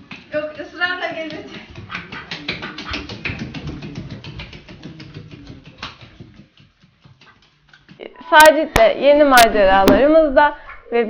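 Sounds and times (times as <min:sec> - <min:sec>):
duck footsteps on marble floor: 0:00.0 - 0:08.0.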